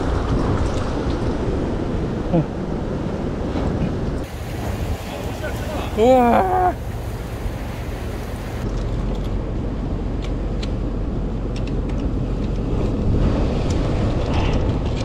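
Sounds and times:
surf on rocky shore: 0:00.0 - 0:08.9, 0:12.5 - 0:15.0
wind buffeting microphone: 0:00.0 - 0:15.0.

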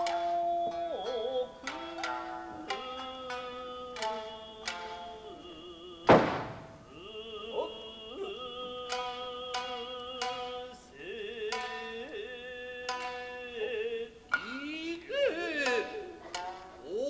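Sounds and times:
person singing wavering line: 0:00.0 - 0:06.1, 0:06.8 - 0:17.0
shamisen plucks: 0:00.0 - 0:17.0
sharp percussive strike: 0:06.1 - 0:07.0.

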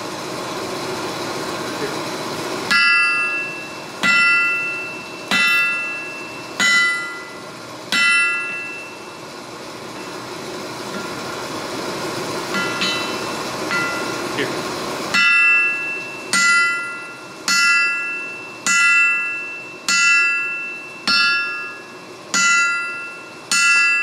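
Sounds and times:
steady hum: 0:00.0 - 0:24.0
hammer striking anvil: 0:02.7 - 0:09.2, 0:12.5 - 0:14.4, 0:15.1 - 0:24.0
anvil ringing: 0:02.7 - 0:09.3, 0:12.4 - 0:14.5, 0:15.1 - 0:24.0.

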